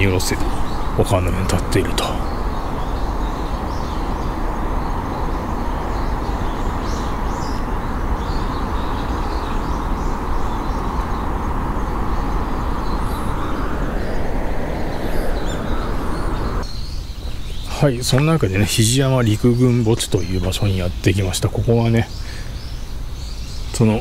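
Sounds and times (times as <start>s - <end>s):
distant city traffic hum: 0.0s - 24.0s
faint bird chirps: 0.0s - 24.0s.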